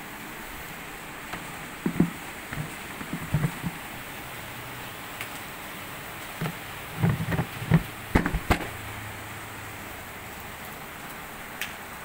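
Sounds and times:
knocks and bumps: 0:01.3 - 0:04.0, 0:06.4 - 0:08.8.

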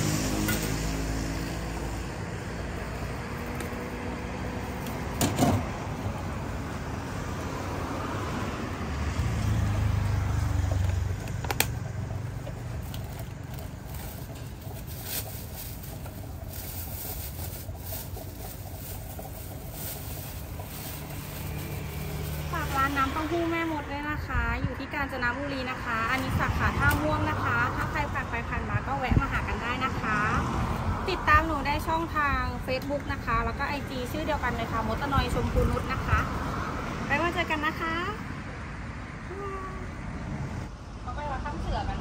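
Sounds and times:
vehicle motor rumbling: 0:00.0 - 0:24.7
plastic bags crinkling: 0:12.6 - 0:22.8.

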